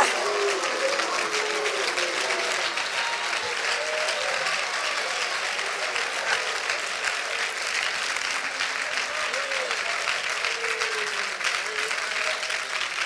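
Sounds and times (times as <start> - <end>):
voices calling out: 0.0 - 7.6
congregation clapping: 0.0 - 13.0.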